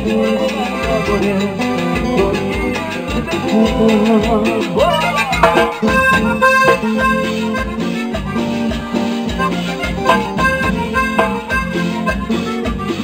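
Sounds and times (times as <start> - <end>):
live band playing: 0.0 - 13.0
button accordion melody: 0.5 - 13.0.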